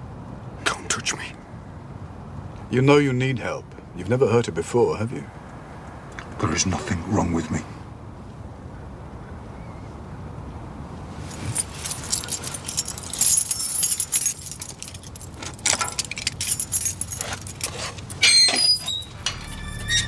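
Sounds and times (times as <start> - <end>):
metallic jingling and clinking: 11.2 - 20.0
low steady rumble: 19.0 - 20.0.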